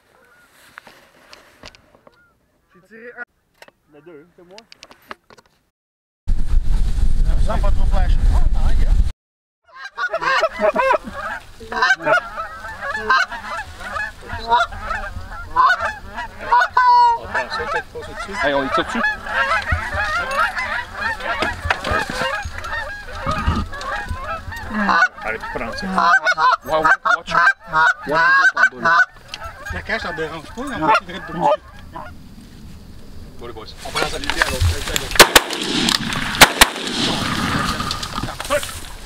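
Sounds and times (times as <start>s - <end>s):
geese honking: 0.0s - 0.9s, 9.7s - 32.2s.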